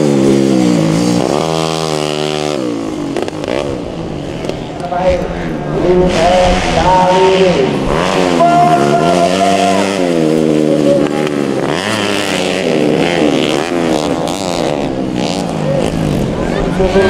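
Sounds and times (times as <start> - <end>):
motorcycle engines revving: 0.0 - 17.0.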